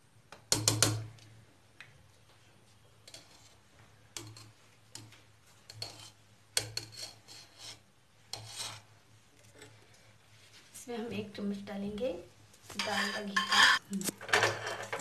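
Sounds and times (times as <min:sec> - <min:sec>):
spoon scraping steel container: 0:05.7 - 0:08.9, 0:12.8 - 0:15.0.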